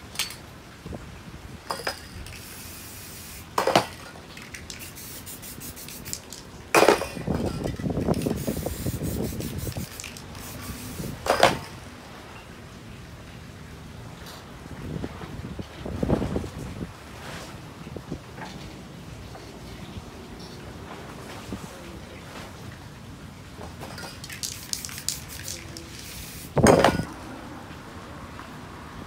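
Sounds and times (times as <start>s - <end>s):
spray paint can hissing: 2.2s - 3.6s, 4.4s - 6.4s, 8.0s - 11.3s, 24.2s - 27.1s
metal cans clinking and rattling: 3.6s - 5.1s, 9.8s - 10.5s, 23.8s - 27.1s.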